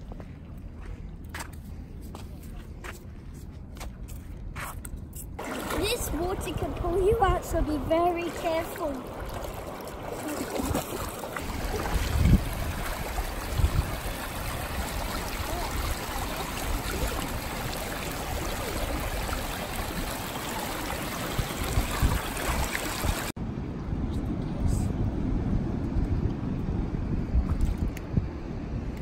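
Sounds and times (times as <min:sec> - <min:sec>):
bare feet splashing in shallow water: 0:05.4 - 0:23.3
moving water: 0:05.4 - 0:23.4.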